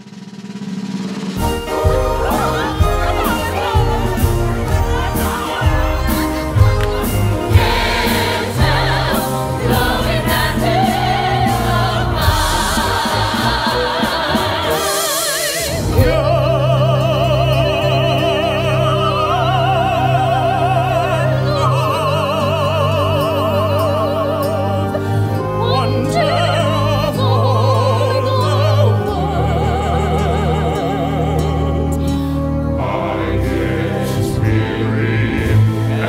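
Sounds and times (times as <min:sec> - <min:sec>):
person singing with vibrato: 0:07.6 - 0:36.0.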